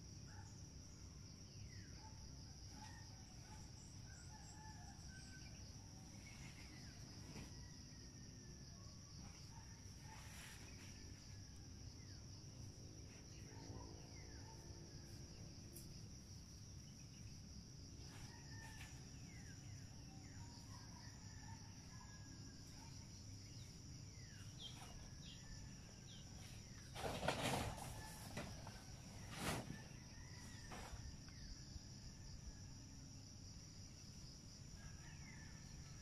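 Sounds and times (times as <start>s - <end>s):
high drone of insects: 0.0s - 36.0s
rooster crowing faintly: 2.7s - 8.9s, 18.0s - 19.5s.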